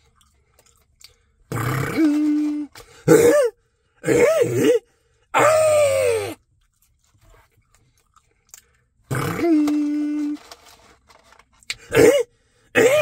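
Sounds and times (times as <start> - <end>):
man making comic vocal noises: 1.8 - 4.8, 5.4 - 6.4, 9.1 - 10.4.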